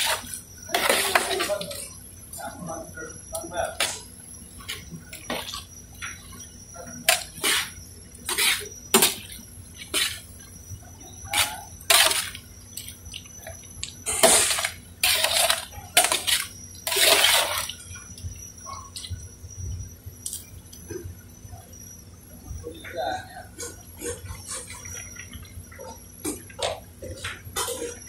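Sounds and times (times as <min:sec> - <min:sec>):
ladle stirring pasta in water: 0:11.3 - 0:18.1.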